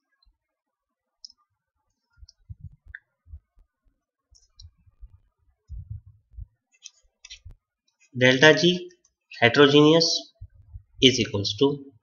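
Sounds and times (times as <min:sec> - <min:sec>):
dull low thumps: 0:02.2 - 0:03.6, 0:04.6 - 0:06.6, 0:10.4 - 0:11.0.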